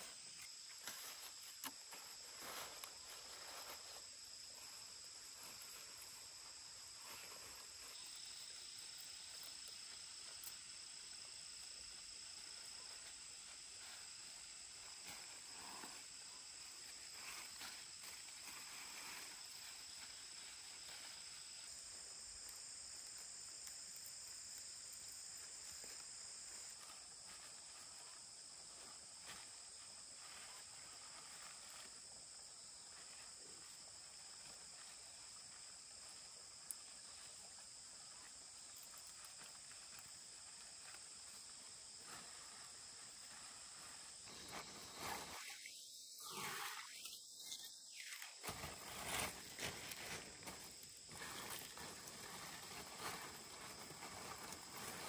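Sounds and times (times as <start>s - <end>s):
soft rustles: 0.0s - 8.2s, 38.7s - 55.0s
insects chirring: 0.0s - 55.0s.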